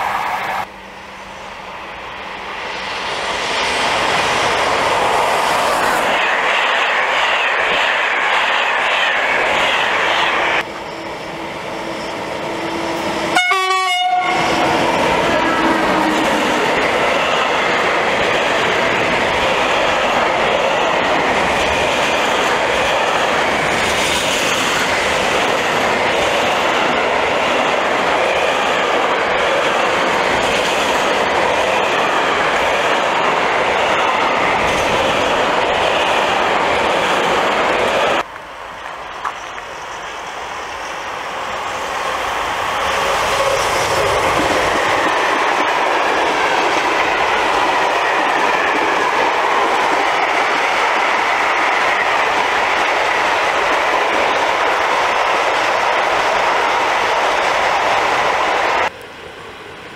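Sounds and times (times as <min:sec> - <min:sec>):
passenger train rushing past: 0:00.0 - 0:59.9
locomotive horn: 0:13.3 - 0:14.7.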